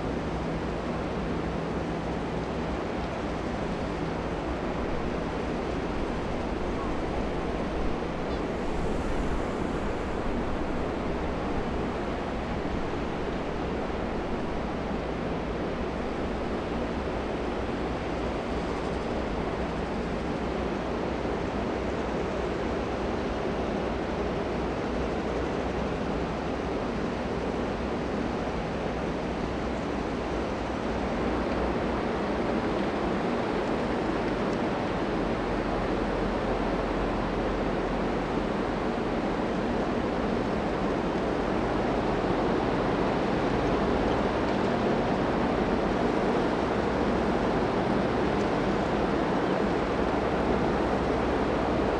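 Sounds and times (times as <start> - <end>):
water rushing along hull: 0.0 - 51.9
wind: 0.0 - 51.9.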